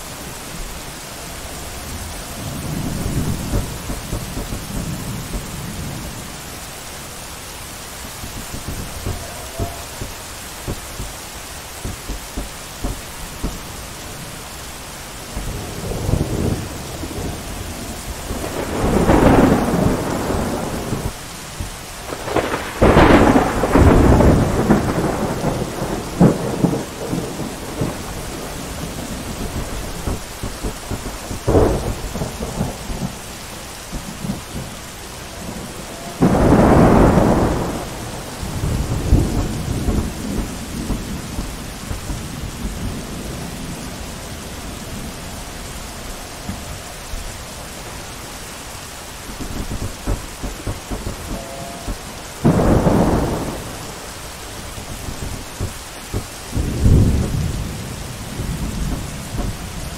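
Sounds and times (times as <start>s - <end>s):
steady rain: 0.0s - 59.9s
thunder rumbling: 0.0s - 59.9s
sharp thunder cracks: 2.4s - 6.1s, 15.3s - 33.2s, 35.4s - 43.9s, 49.4s - 59.9s.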